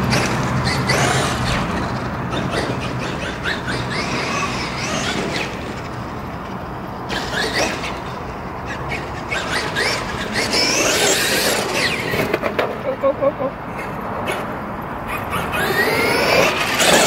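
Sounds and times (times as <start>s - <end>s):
electric toy car motor whining: 0.0s - 6.0s, 7.1s - 12.4s, 15.1s - 17.0s.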